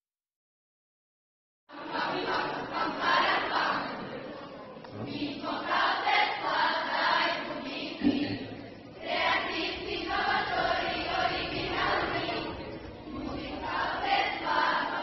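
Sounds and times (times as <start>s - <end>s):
children's choir singing: 1.7s - 15.0s.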